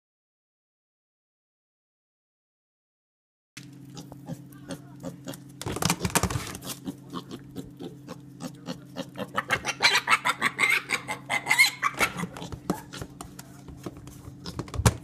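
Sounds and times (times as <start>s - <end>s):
piglet grunting and squealing: 3.8s - 15.0s
hooves tapping on plastic: 5.6s - 6.6s, 12.2s - 15.0s.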